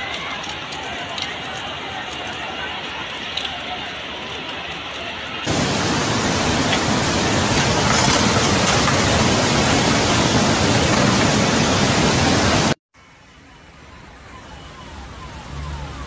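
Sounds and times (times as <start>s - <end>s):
torrent of water rushing: 0.0s - 12.8s.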